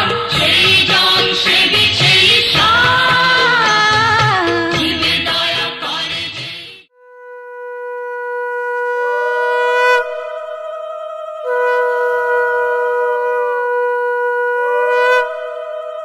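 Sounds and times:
conch shells blown: 6.9 - 10.8, 11.4 - 16.0.

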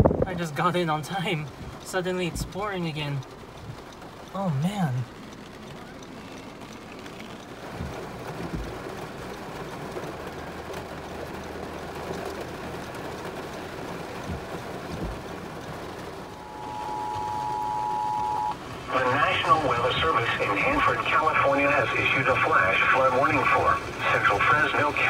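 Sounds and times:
heavy rain on car: 0.0 - 25.0
road noise: 0.0 - 25.0
steady electronic tone: 16.3 - 18.6.

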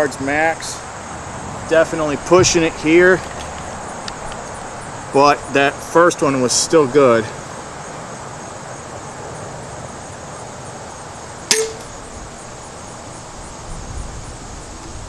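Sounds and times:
crossbow string snap and twang: 11.5 - 12.0.

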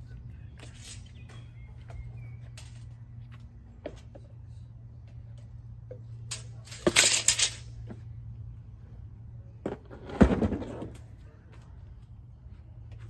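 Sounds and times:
steady low hum: 0.0 - 13.0
scraping and clattering handling noise: 6.2 - 8.0, 9.6 - 11.1.

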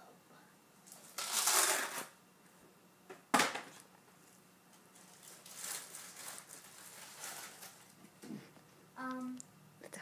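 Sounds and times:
paper pages rustling: 4.9 - 8.0.

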